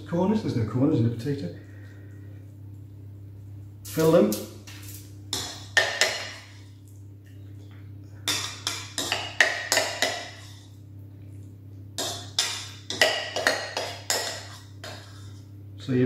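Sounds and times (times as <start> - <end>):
metal spoon scraping a bowl: 12.0 - 15.4.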